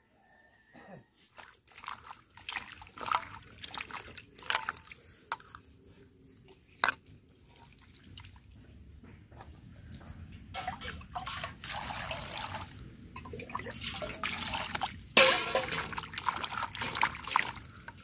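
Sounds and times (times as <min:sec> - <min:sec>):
water sloshing and dripping: 0:01.3 - 0:18.0
sharp water splashes: 0:01.4 - 0:04.9, 0:10.6 - 0:18.0.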